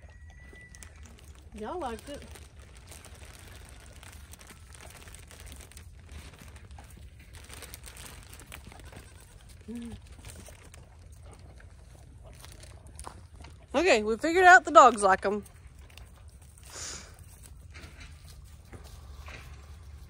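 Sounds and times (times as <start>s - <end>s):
plastic bag crinkling: 0.0s - 13.6s.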